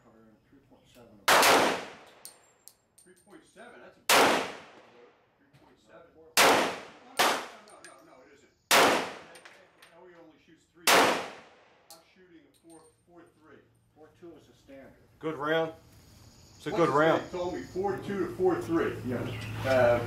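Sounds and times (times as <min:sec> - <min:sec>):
pistol shots with echo: 0:01.3 - 0:02.4, 0:04.1 - 0:05.1, 0:06.4 - 0:08.0, 0:08.7 - 0:09.6, 0:10.8 - 0:12.0.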